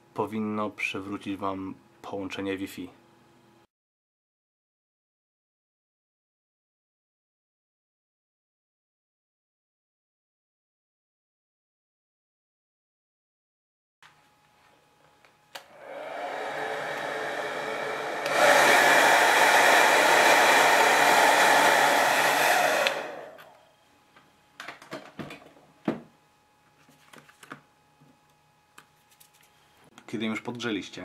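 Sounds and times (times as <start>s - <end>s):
hair dryer blowing: 15.6s - 23.6s.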